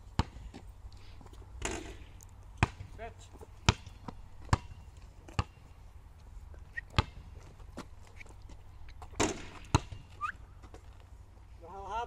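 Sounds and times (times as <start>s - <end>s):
basketball bouncing on asphalt: 0.0s - 10.9s.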